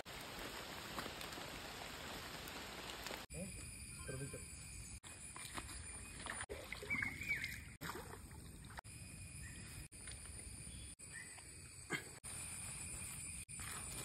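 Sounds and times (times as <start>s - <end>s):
river water splashing: 5.4s - 8.8s.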